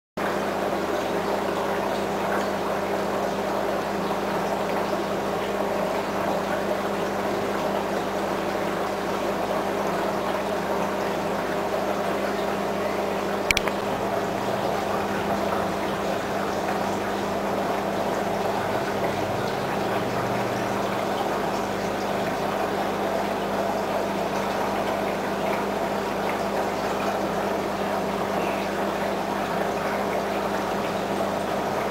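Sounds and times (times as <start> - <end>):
trickling water: 0.2 - 31.9
sharp click: 13.5 - 13.9.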